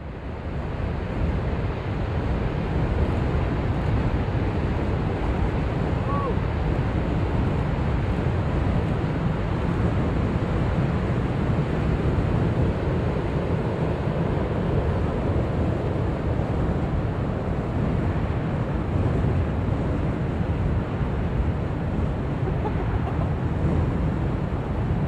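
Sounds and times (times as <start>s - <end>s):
wind buffeting microphone: 0.0s - 25.0s
ocean surf breaking: 9.5s - 25.0s.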